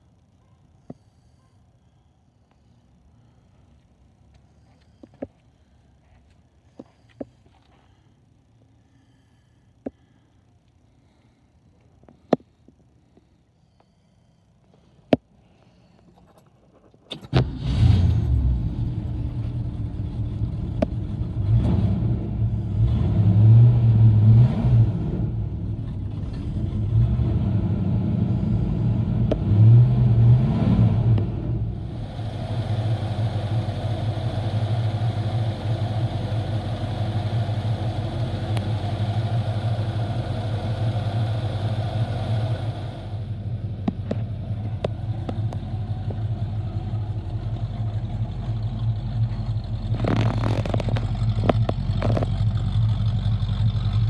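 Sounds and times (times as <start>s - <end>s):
car engine revving and idling: 17.3s - 54.0s.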